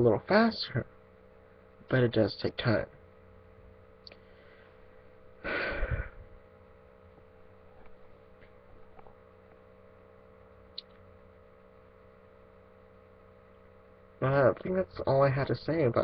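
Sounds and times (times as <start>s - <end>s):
steady electrical hum: 0.0s - 16.0s
person breathing loudly: 4.2s - 4.8s, 5.4s - 6.3s.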